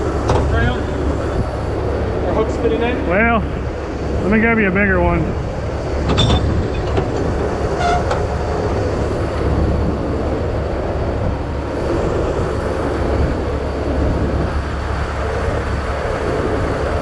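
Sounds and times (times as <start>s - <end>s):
diesel engine rumbling: 0.0s - 17.0s.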